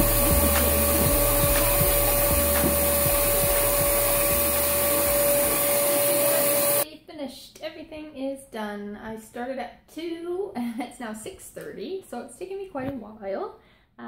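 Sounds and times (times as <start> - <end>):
vacuum cleaner whining: 0.0 - 6.8.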